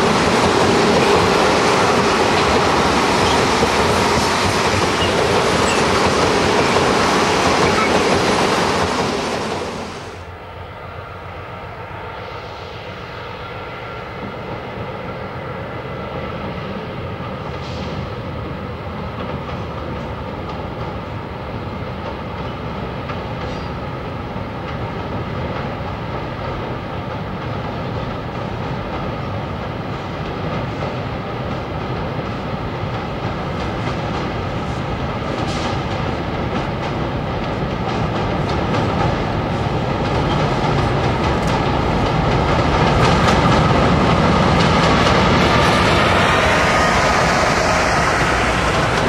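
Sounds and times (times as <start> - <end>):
train wheels clattering on rails: 0.0 - 10.3, 16.1 - 49.0
diesel locomotive engine running: 0.0 - 15.6, 29.7 - 49.0.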